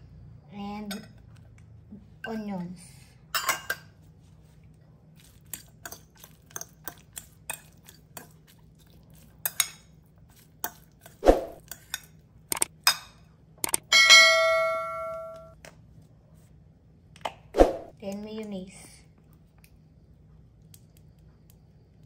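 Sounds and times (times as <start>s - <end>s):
bell ding: 13.9s - 15.5s.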